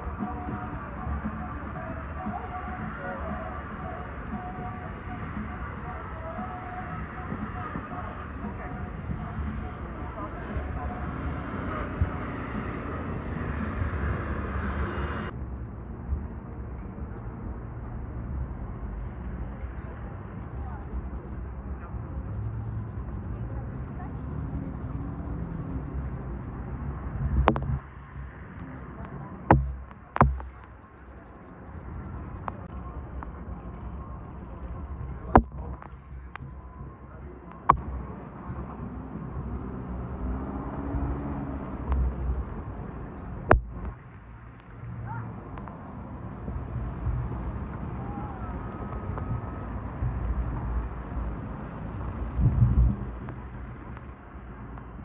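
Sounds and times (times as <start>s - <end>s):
traffic rumble: 0.0s - 55.0s
wind: 0.0s - 55.0s
sharp knock: 27.4s - 27.8s, 29.5s - 30.7s.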